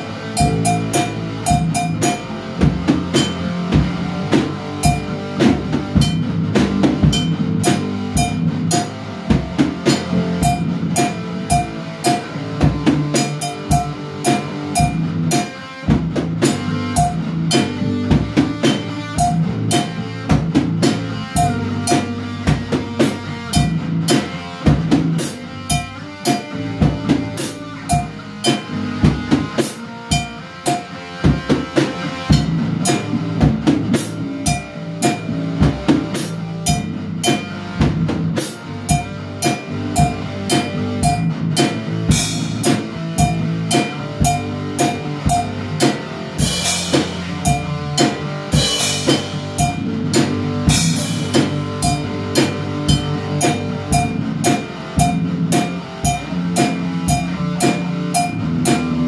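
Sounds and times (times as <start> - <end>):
band playing rock groove: 0.0 - 59.0
drum kit: 0.0 - 59.0
electric guitar: 0.0 - 59.0.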